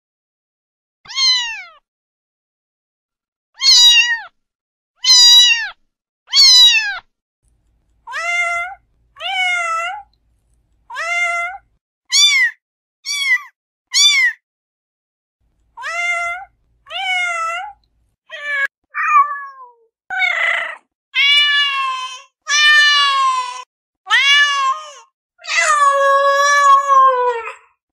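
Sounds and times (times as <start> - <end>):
cat meowing: 1.1 - 1.8, 3.6 - 4.3, 5.0 - 7.0, 8.1 - 10.1, 10.9 - 14.4, 15.8 - 27.5.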